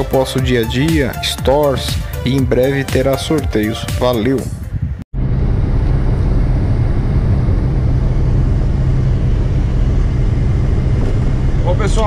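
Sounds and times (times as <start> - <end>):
diesel engine low drone: 4.8 - 12.0.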